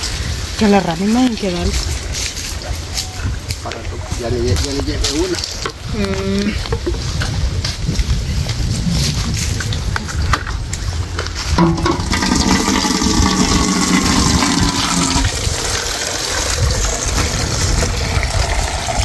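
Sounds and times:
water gushing into metal pot: 11.6s - 19.0s.

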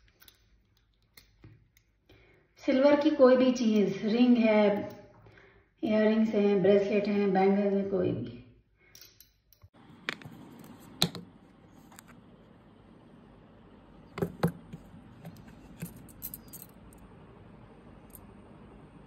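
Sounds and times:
bangles clinking: 15.3s - 17.0s.

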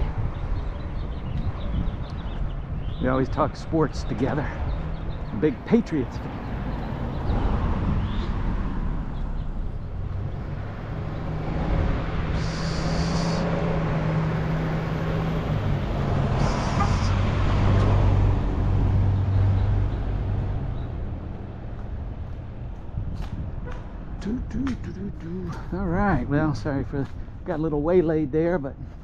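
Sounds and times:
short bursts of hiss: 12.4s - 13.5s.

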